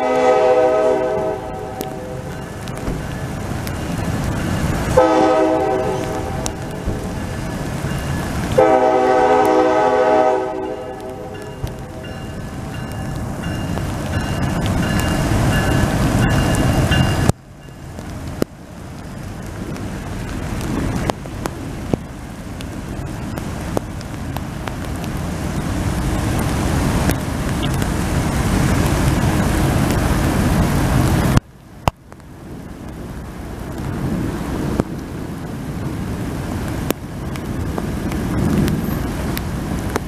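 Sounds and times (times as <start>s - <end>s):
train horn chord: 0.0s - 2.4s, 4.9s - 7.0s, 8.6s - 12.2s
heavy rain rushing: 0.0s - 40.0s
train rumbling: 0.0s - 40.0s.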